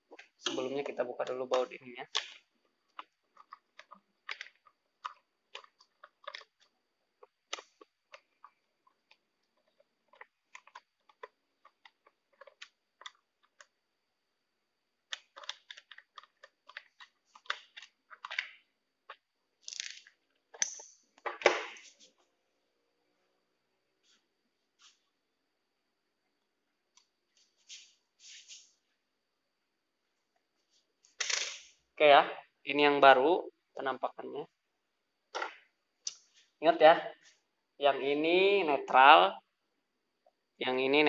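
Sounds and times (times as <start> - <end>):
screwdriver clicks and scrapes: 20.6 - 21.0.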